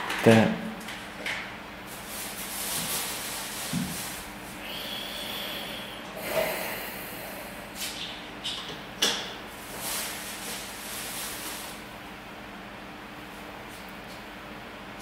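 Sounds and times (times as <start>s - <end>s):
man breathing through nose: 4.5s - 7.9s
hissing exhale: 4.5s - 8.0s.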